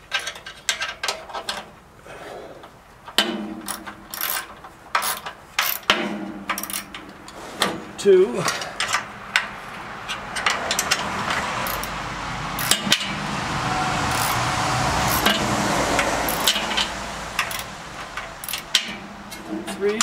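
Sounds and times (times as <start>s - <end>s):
metal bolts clicking and clinking: 0.0s - 1.8s, 3.0s - 7.8s, 8.4s - 12.0s, 12.6s - 13.2s, 16.3s - 20.0s
passing vehicle rush: 6.6s - 20.0s.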